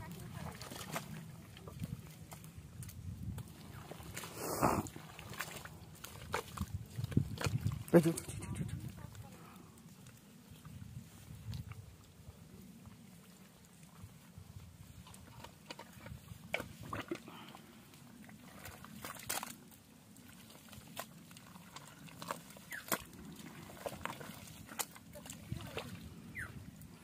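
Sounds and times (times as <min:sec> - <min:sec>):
wet mud squelching: 0:00.0 - 0:27.0
mud sucking pops: 0:04.1 - 0:05.5.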